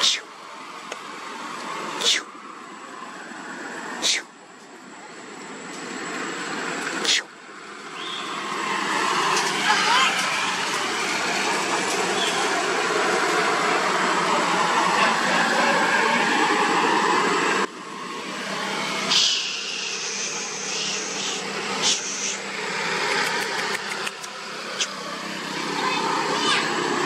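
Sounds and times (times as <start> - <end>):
monkey squealing: 0.0 - 0.3, 2.0 - 2.3, 4.0 - 4.3, 19.1 - 22.4
dense background noise: 0.0 - 27.0.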